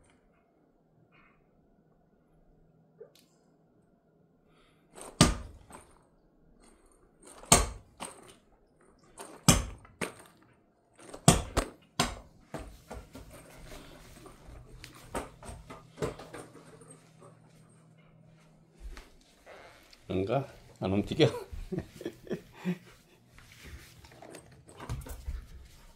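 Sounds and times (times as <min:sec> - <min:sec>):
sharp knocks and thuds: 0:05.2 - 0:05.8.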